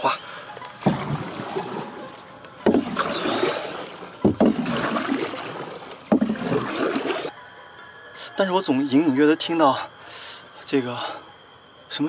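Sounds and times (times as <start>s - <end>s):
water dripping and swirling: 0.4s - 7.3s
paddle splashing in water: 0.6s - 7.3s.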